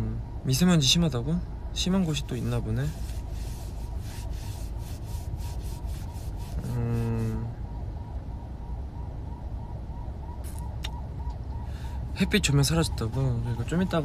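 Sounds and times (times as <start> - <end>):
man humming: 6.6 - 7.5
car cabin road rumble: 10.4 - 14.0.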